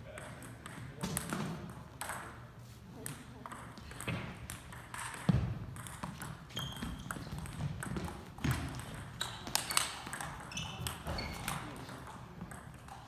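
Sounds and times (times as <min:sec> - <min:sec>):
table tennis ball clicking: 0:03.0 - 0:11.6.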